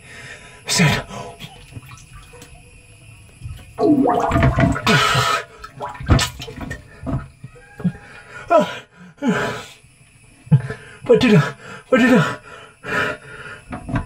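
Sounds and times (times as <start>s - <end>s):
water splashing in tank: 1.4s - 7.8s.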